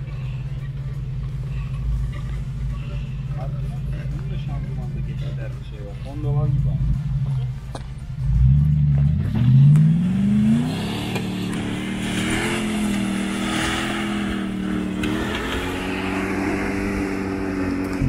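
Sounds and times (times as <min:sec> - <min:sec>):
engine revving at high revs: 0:08.2 - 0:18.0.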